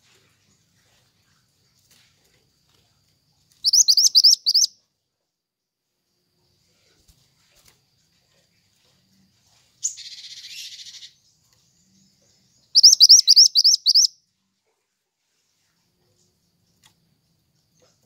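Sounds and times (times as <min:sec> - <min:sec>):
sharp rising bird chirps: 0:03.6 - 0:04.7, 0:09.8 - 0:11.2, 0:12.7 - 0:14.2
bird harsh buzzy call: 0:03.7 - 0:04.7, 0:12.8 - 0:14.1.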